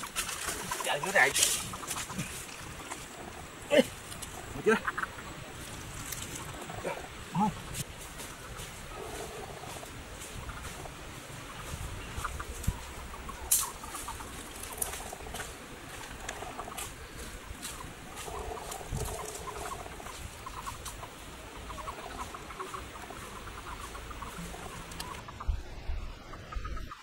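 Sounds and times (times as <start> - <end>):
birds calling: 0.0 - 27.0
footsteps crunching through leaves: 7.8 - 21.4.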